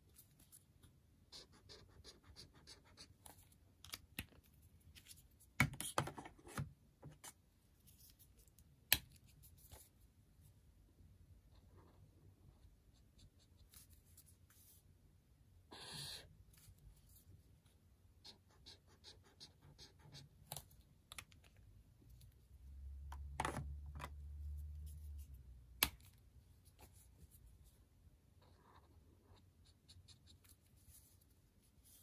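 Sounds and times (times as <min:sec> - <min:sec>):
highlighter scratching on paper: 0:01.3 - 0:03.1, 0:15.7 - 0:16.3.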